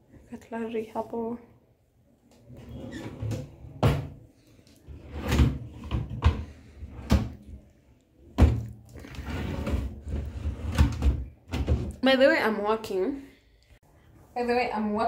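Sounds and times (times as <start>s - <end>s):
drawers sliding and scraping: 2.4s - 4.2s, 4.8s - 7.6s, 9.0s - 12.0s.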